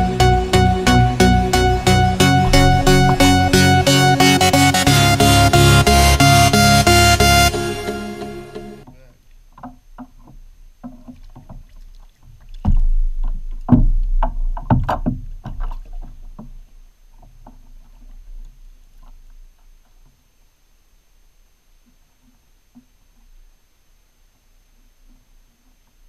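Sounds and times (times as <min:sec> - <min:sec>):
knocks on plastic kayak hull: 0:12.6 - 0:16.6.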